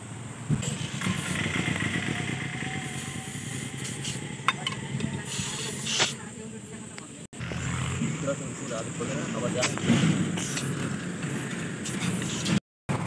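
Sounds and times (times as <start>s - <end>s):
compressed air hissing into tyre: 0.4s - 6.6s, 9.5s - 12.6s.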